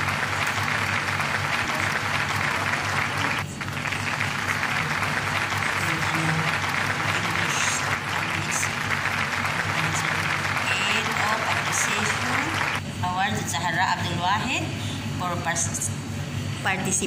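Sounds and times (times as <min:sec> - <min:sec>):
clapping: 0:00.0 - 0:12.8.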